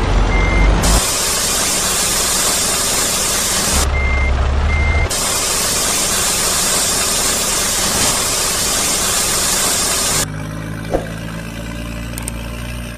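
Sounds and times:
truck engine idling: 0.0 - 12.9
loud even hiss: 0.8 - 3.9, 5.1 - 10.2.

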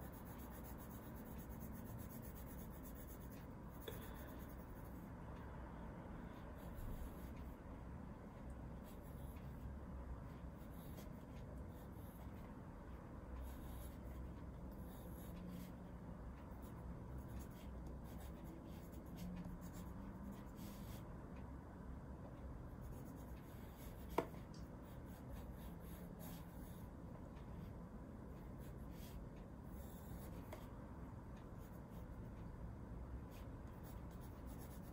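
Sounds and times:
pencil scratching on paper: 0.0 - 5.1, 6.3 - 7.6, 8.8 - 9.6, 10.2 - 12.5, 13.4 - 21.0, 22.8 - 26.9, 28.4 - 30.7, 31.6 - 32.2, 33.3 - 34.9.

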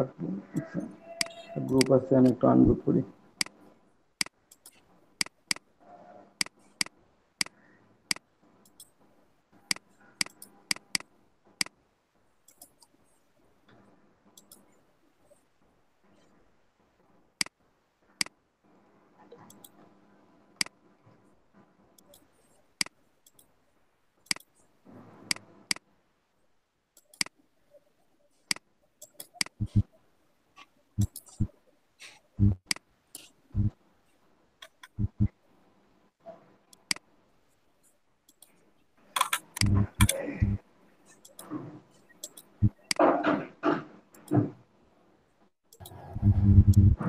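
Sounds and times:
computer mouse clicking: 0.6 - 2.4, 4.2 - 5.7, 6.4 - 9.0, 9.7 - 11.8, 12.4 - 13.0, 14.4 - 14.7, 19.3 - 19.9, 22.0 - 23.5, 24.2 - 24.6, 27.0 - 27.4, 28.5 - 29.9, 31.0 - 31.5, 38.3 - 38.6, 39.2 - 43.0, 45.7 - 46.9.

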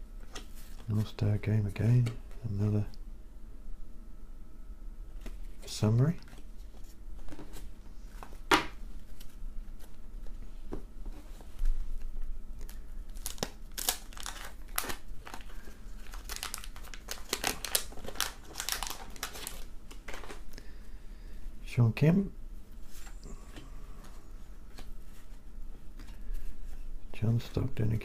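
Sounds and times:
paper wrapper crinkling and tearing: 12.6 - 20.5.

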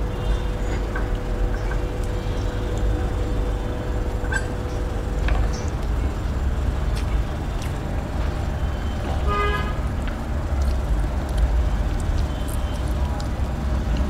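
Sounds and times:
road traffic rumble: 0.0 - 14.0
car horn toot: 8.8 - 9.8.

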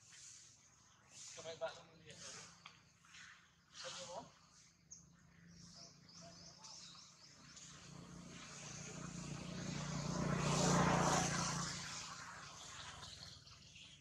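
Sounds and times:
engine passing by: 5.4 - 14.0.

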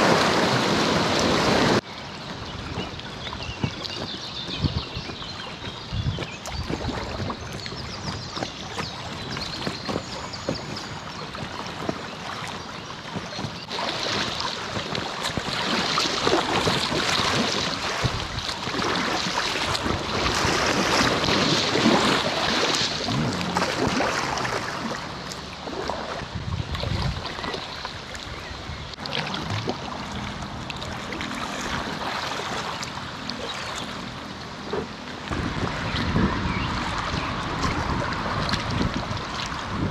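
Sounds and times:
river water rushing: 0.0 - 3.3, 13.6 - 39.9
paddle splashes: 0.0 - 39.9.

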